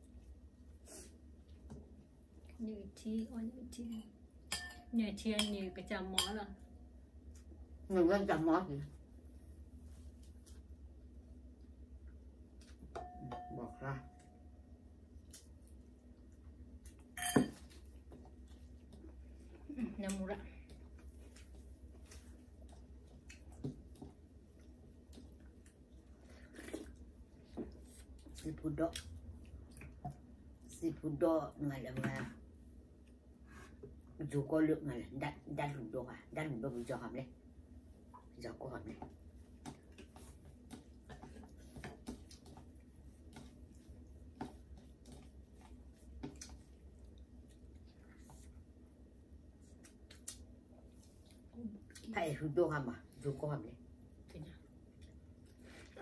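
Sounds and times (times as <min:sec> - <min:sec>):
low steady hum: 0:00.0 - 0:56.0
person chewing: 0:49.5 - 0:52.1.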